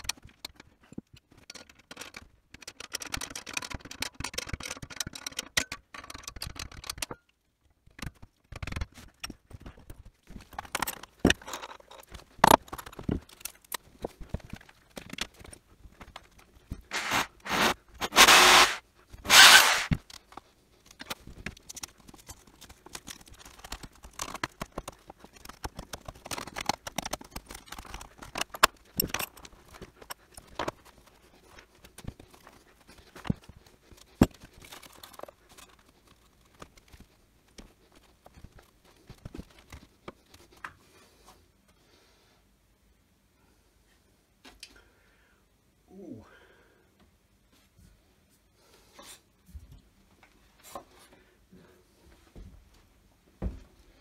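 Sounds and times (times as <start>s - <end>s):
scrapes clicks and knocks: 0.0s - 40.8s
loud scraping noises: 16.9s - 20.0s.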